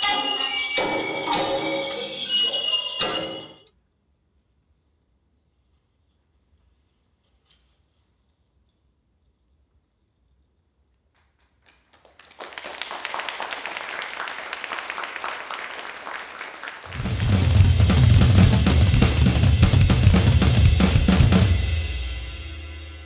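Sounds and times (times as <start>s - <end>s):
heavy drums and cymbals: 16.9s - 23.0s.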